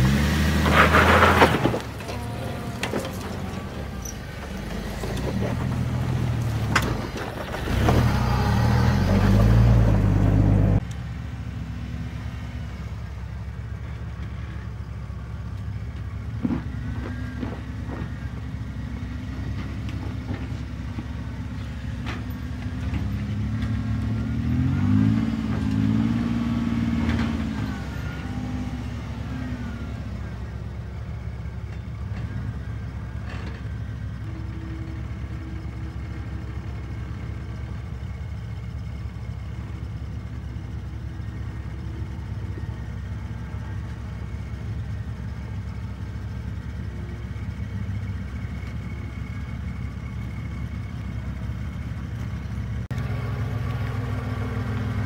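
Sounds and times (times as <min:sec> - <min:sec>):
off-road engine running: 0:00.0 - 0:55.0.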